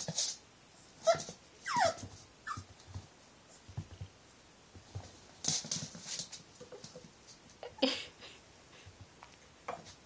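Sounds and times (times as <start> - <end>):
puppy paws scuffing on wood floor: 1.0 - 7.6.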